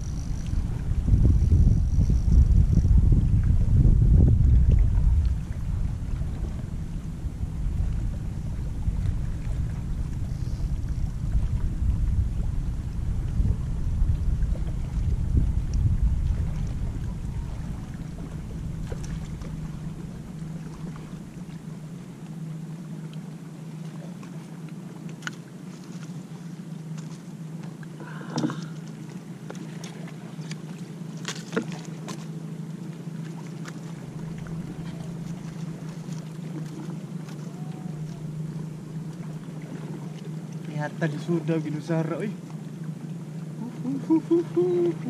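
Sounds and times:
wind rumble on microphone: 0.0s - 22.0s, 33.8s - 42.3s, 43.6s - 45.0s
low engine hum: 0.0s - 45.0s.

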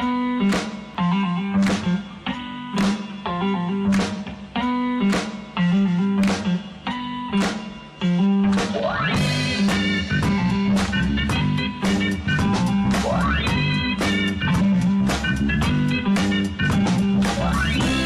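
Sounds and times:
bass: 0.0s - 18.0s
guitar: 0.0s - 18.0s
steady drum beat: 8.6s - 18.0s.

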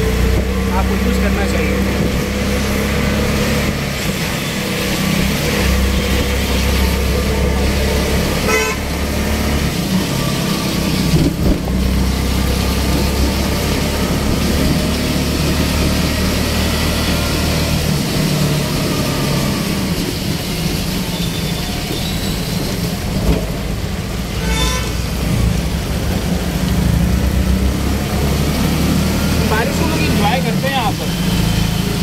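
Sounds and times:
vehicle engine running: 0.0s - 24.3s
hiss of rain and traffic: 0.0s - 32.0s
vehicle horn toot: 8.4s - 9.0s, 24.4s - 25.1s.

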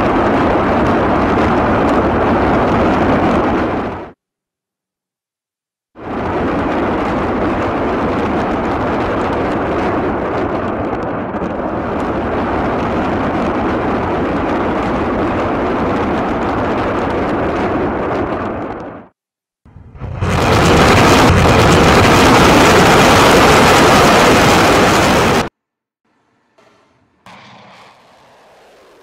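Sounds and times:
rocket salvo rushing roar: 26.1s - 29.0s.

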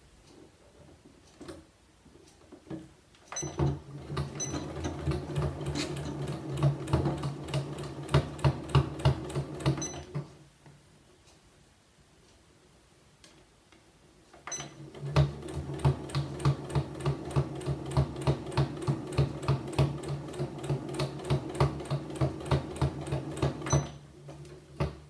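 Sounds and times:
sewing machine stitching: 3.3s - 10.3s, 14.5s - 25.0s.

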